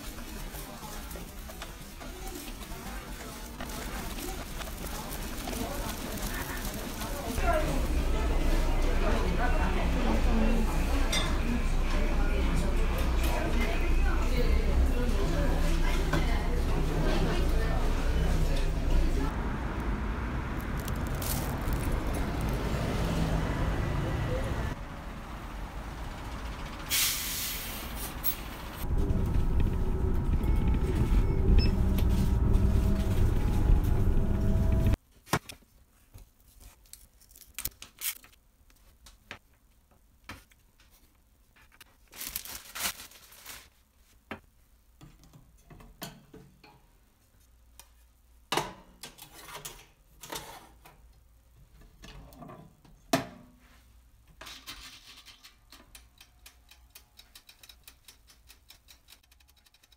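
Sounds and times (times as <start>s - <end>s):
street traffic noise: 0.0s - 35.0s.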